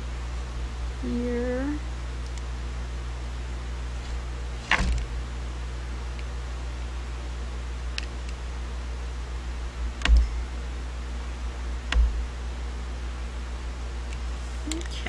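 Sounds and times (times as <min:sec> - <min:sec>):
steady low hum: 0:00.0 - 0:15.0
sharp knocks: 0:04.6 - 0:05.1, 0:10.0 - 0:10.4, 0:11.9 - 0:12.3.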